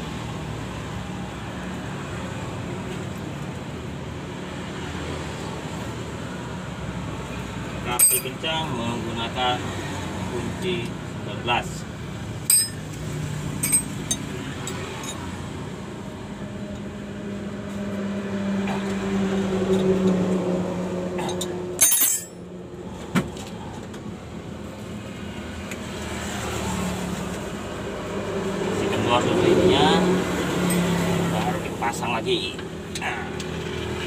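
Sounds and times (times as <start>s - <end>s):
wrench clinking against bolts: 8.0s - 8.4s, 12.5s - 12.8s, 13.6s - 15.3s, 21.3s - 22.4s
sharp metal clatter: 12.5s - 12.9s, 21.8s - 22.4s.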